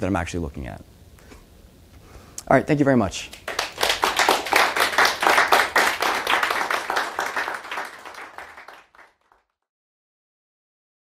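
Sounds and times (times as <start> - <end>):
audience applauding: 3.4 - 9.5.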